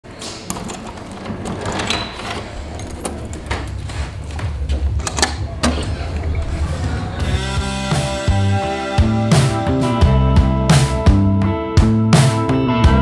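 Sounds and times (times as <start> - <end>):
key working metal lock: 0.2 - 3.9
low rumble: 2.5 - 8.0.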